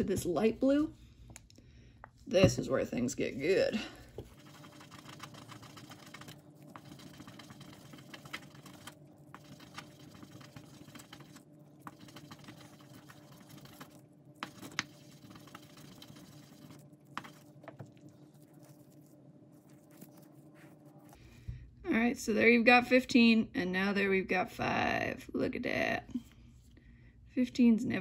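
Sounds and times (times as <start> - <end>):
scratchy rubbing on wet paper: 4.2 - 21.2.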